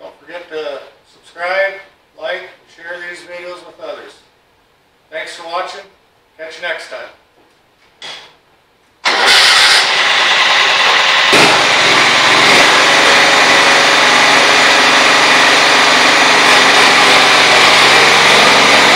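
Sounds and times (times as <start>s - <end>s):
lawn tractor engine starting and running: 9.0s - 18.9s.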